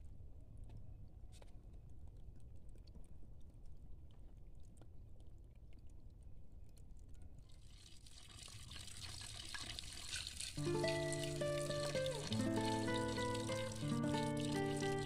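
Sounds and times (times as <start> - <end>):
music: 10.6 - 15.0
water bubbling and hissing: 10.6 - 15.0.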